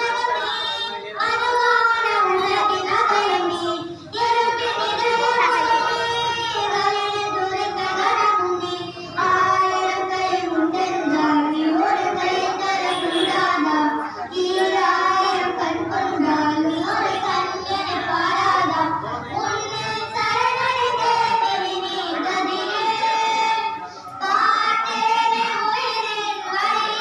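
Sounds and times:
children singing a hymn: 0:00.0 - 0:27.0.

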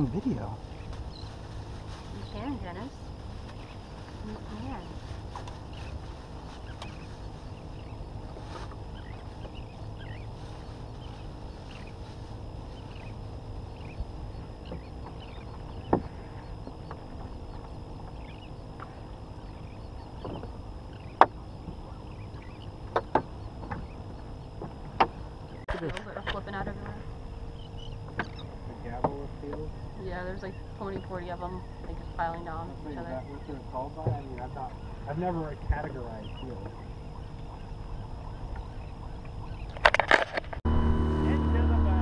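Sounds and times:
sharp knocks on boat: 0:22.8 - 0:23.9, 0:34.0 - 0:34.5.

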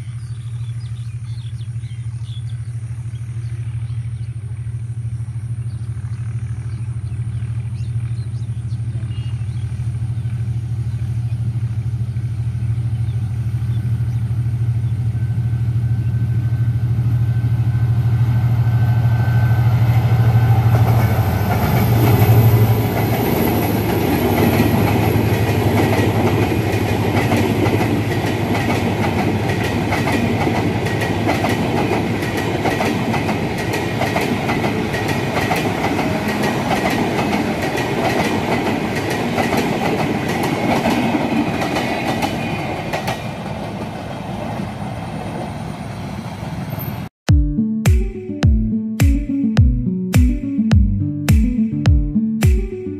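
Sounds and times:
locomotive engine drone: 0:00.0 - 0:39.1
wheels clacking over rail joints: 0:20.7 - 0:44.6.

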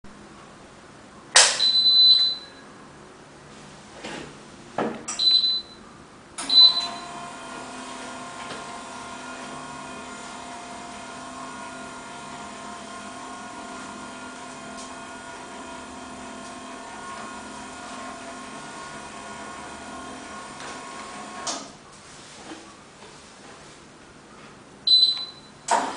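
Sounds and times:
clothes rack unit beeping: 0:01.6 - 0:02.6, 0:05.1 - 0:05.8, 0:06.4 - 0:07.3, 0:24.9 - 0:25.9
motor humming: 0:06.5 - 0:21.6.

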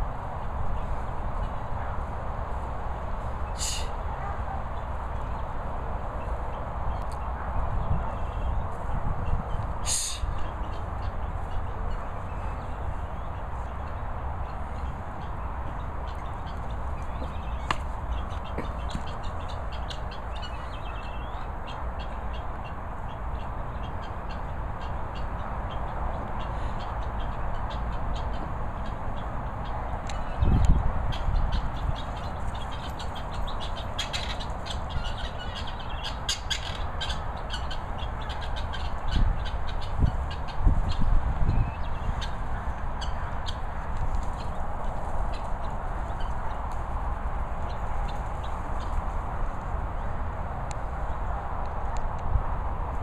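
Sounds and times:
guinea fowl calling: 0:03.4 - 0:05.4, 0:09.8 - 0:46.6.

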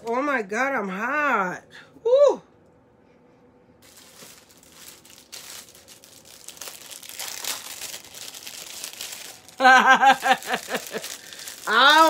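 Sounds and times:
crinkling and rustling: 0:03.8 - 0:12.0.

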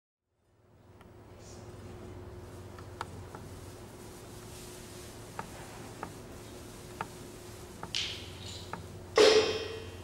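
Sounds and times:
low room hum: 0:00.2 - 0:10.0.

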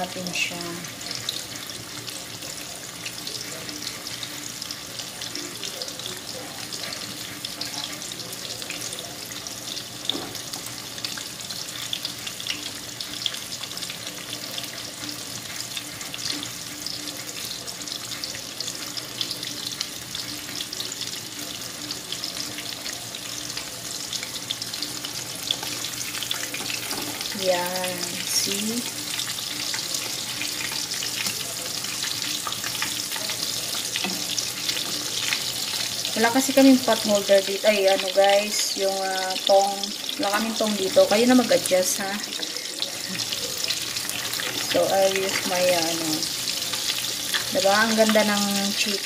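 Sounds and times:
food sizzling in oil: 0:00.0 - 0:49.0.

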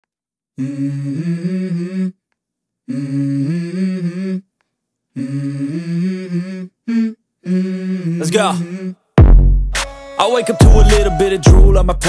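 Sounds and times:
man humming a melody: 0:10.0 - 0:12.0.

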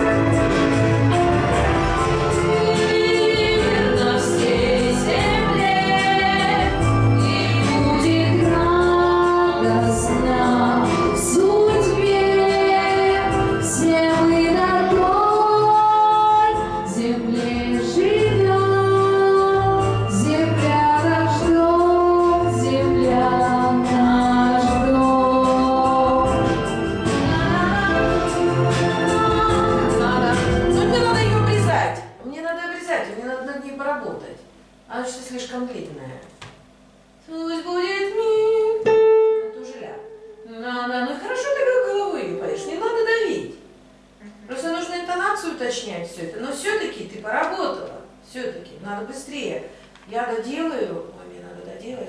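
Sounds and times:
instrumental accompaniment: 0:00.0 - 0:31.7, 0:38.8 - 0:40.6
girl singing into microphone: 0:02.6 - 0:26.5.

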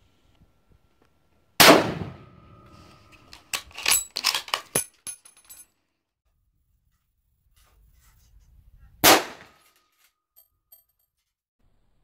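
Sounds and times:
rifle shot: 0:01.6 - 0:02.4, 0:09.0 - 0:09.6.

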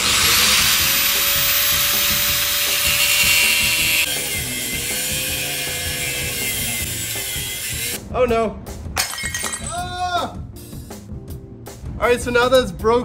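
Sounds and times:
angle grinder cutting: 0:00.0 - 0:08.0.

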